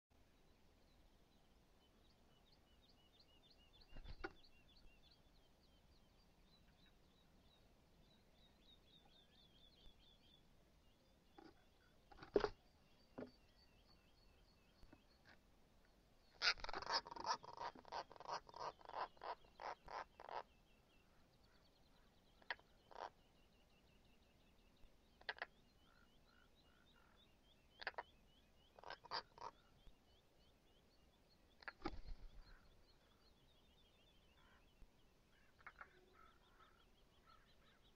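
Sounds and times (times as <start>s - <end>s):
faint high bird chirping: 0.2s - 37.9s
birds knocking in nest box: 11.4s - 12.6s
rapid harsh bird calls: 16.3s - 23.2s, 25.2s - 29.8s, 31.6s - 33.2s, 35.3s - 37.9s.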